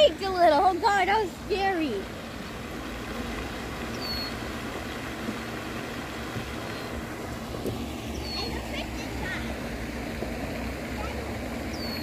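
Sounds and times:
outdoor background rumble: 0.0s - 12.0s.

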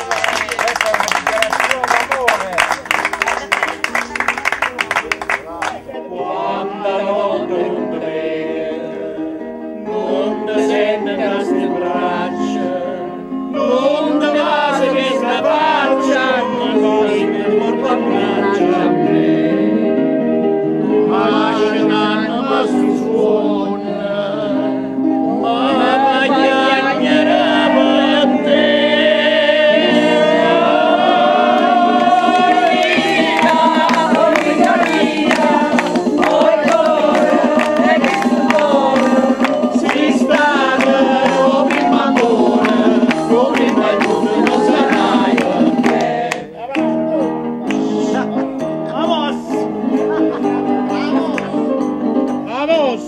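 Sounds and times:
hand claps: 0.0s - 5.8s, 32.4s - 47.0s, 47.6s - 47.8s, 51.3s - 51.5s
group of people singing: 5.9s - 20.2s, 20.8s - 46.6s
electronic keyboard playing: 24.9s - 53.0s.

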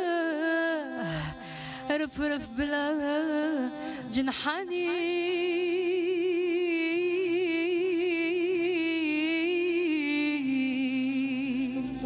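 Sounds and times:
woman singing with vibrato: 0.0s - 12.0s.

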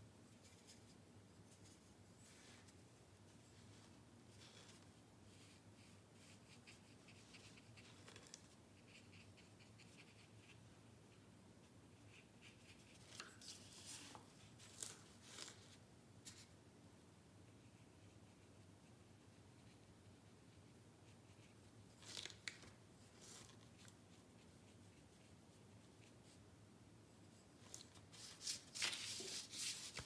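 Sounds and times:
brush strokes on paper: 27.2s - 30.0s.

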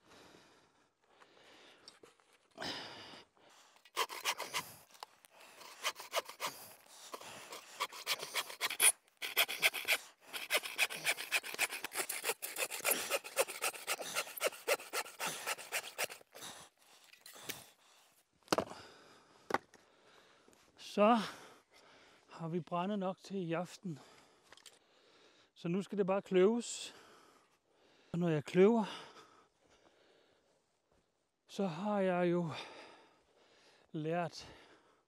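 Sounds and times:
bow saw cutting a log: 3.9s - 16.6s.

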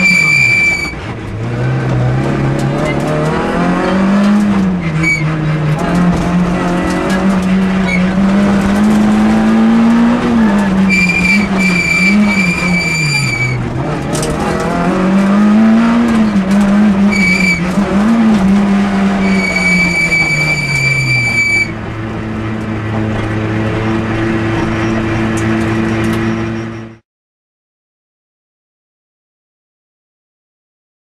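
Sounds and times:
tyres squealing: 0.0s - 1.1s, 2.6s - 13.7s, 15.6s - 21.9s
car engine revving: 0.0s - 27.0s.

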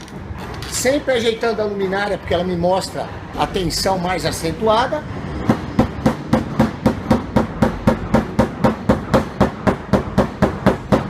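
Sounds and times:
rubber mallet beating on steel: 5.4s - 11.0s.

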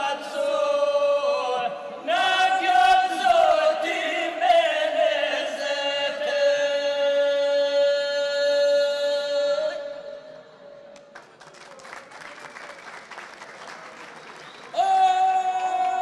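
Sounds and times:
men singing unaccompanied: 0.0s - 10.0s.

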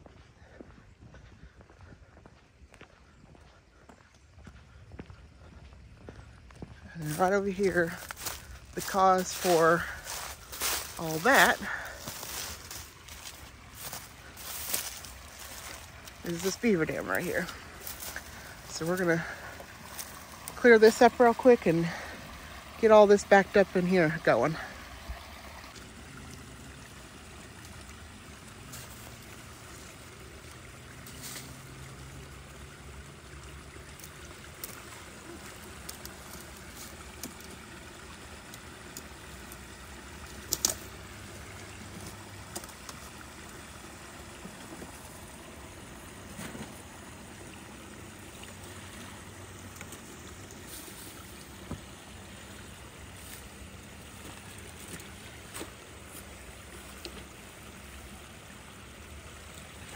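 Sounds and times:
water trickling: 3.0s - 59.9s
sticks being pulled out: 38.5s - 43.2s.

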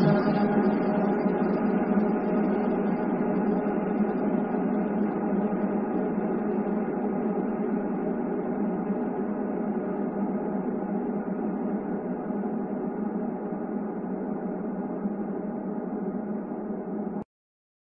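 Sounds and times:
reverberant sustained music wash: 0.0s - 2.1s.

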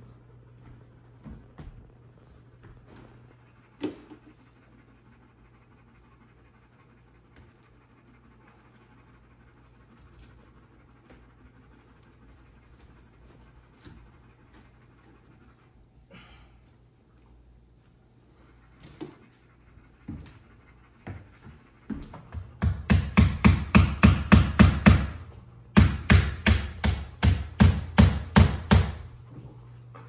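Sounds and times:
soft panting: 18.1s - 22.5s.

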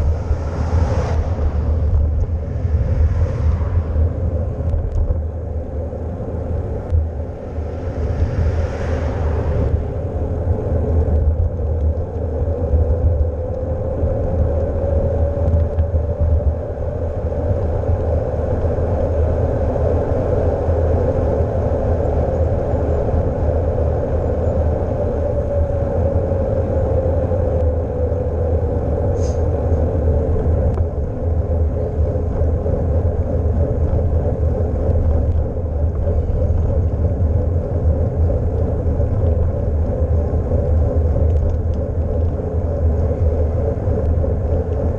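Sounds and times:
hum rising and falling in pitch: 0.0s - 12.4s
tyres on asphalt: 0.0s - 44.9s
wind on microphone: 0.0s - 44.9s.

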